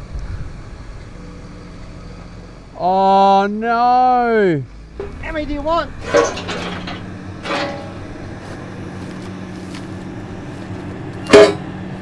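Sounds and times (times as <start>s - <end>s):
steady low hum: 4.6s - 12.0s
metallic clank: 5.0s - 5.3s, 6.0s - 8.4s, 11.2s - 11.7s.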